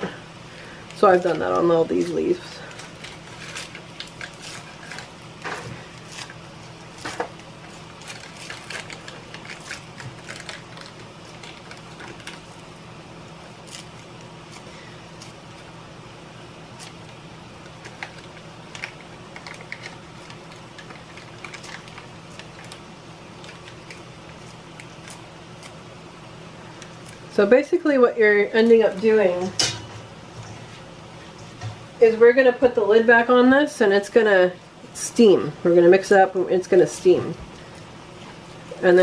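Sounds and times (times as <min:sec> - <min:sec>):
steady low hum: 0:00.0 - 0:39.0
scissors snipping leaves: 0:00.9 - 0:12.5, 0:13.6 - 0:15.4.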